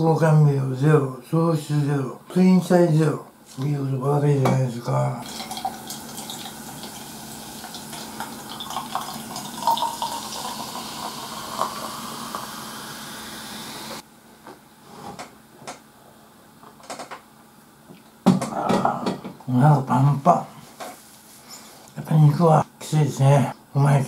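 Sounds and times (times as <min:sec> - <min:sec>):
fizzy drink pouring into metal cup: 0:05.2 - 0:13.6.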